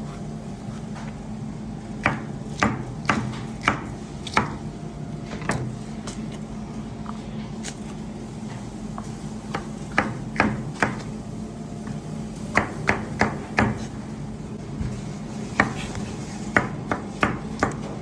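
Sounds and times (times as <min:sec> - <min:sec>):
steady low hum: 0:00.0 - 0:18.0
knife chopping on cutting board: 0:02.0 - 0:04.6, 0:09.5 - 0:11.1, 0:12.5 - 0:14.0, 0:14.8 - 0:18.0.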